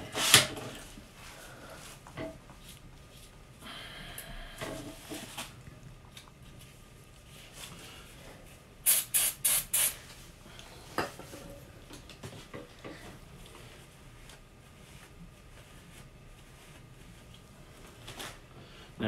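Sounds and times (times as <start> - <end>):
aerosol spray hisses: 8.8 - 10.0.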